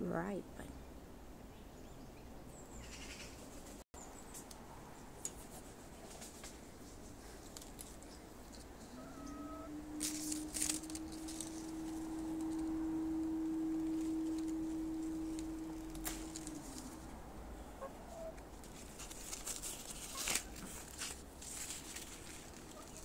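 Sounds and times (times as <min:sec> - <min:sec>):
rustling of leaves and branches: 0:02.6 - 0:23.0
low humming tone: 0:06.9 - 0:23.0.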